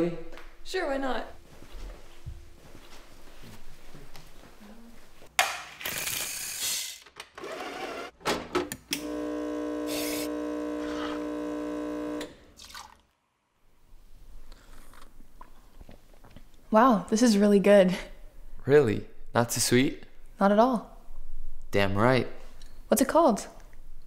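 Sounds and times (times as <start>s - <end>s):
espresso machine rushing: 9.0s - 12.3s
pump humming: 9.0s - 12.5s.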